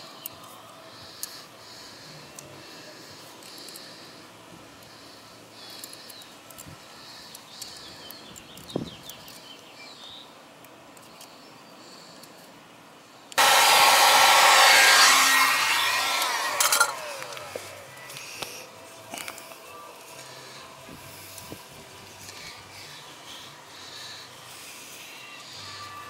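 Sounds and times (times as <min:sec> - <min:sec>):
loud steady rushing noise: 0:13.4 - 0:19.0.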